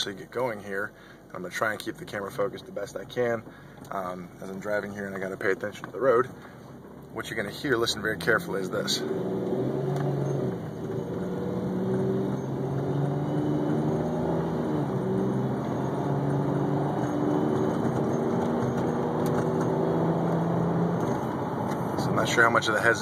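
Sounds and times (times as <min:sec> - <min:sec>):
car engine accelerating: 0:06.7 - 0:23.0.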